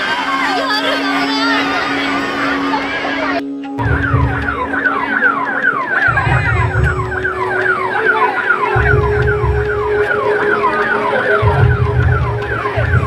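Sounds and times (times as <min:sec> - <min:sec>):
dance music with siren effect: 0:00.0 - 0:13.0
heavy bass beats: 0:03.8 - 0:13.0.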